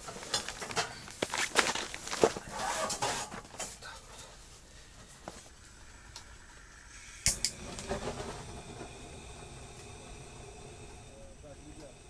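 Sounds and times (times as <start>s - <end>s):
gas torch flame hissing: 5.5s - 12.0s
gas torch igniter clicks: 7.2s - 7.9s.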